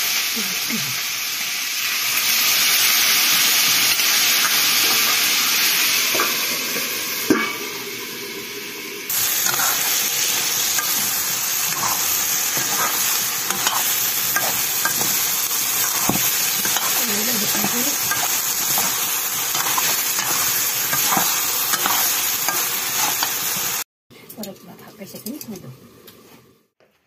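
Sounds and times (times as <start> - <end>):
curry sizzling in a pan: 0.0 - 23.9
utensil scraping and knocking pan: 9.4 - 23.3.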